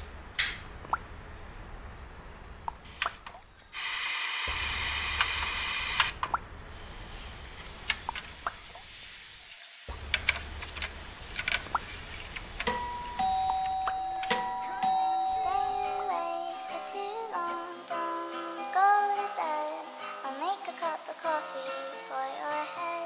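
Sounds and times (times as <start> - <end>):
loud hiss: 2.9 - 13.2.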